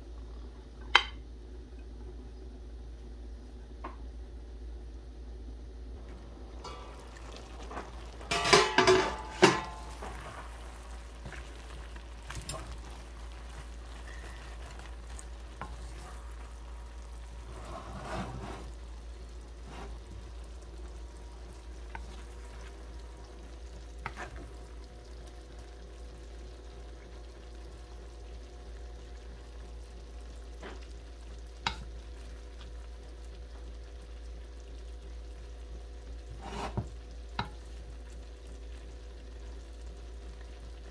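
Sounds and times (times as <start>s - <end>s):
food sizzling in a pan: 6.0s - 40.9s
wooden spatula scraping a pan: 6.6s - 16.7s, 17.3s - 18.8s, 19.6s - 20.1s, 24.0s - 24.5s, 36.3s - 37.0s
metal pan lid clattering: 8.3s - 9.8s.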